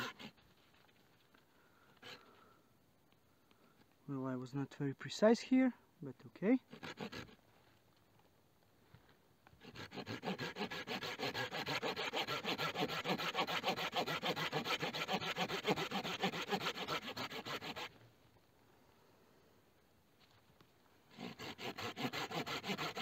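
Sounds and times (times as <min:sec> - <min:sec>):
hand saw cutting wood: 0:00.0 - 0:00.4, 0:06.6 - 0:07.4, 0:09.6 - 0:18.0, 0:21.1 - 0:23.0.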